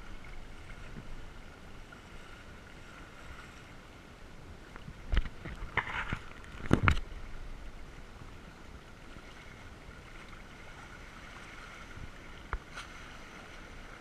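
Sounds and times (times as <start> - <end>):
water rushing along hulls: 0.0 - 14.0.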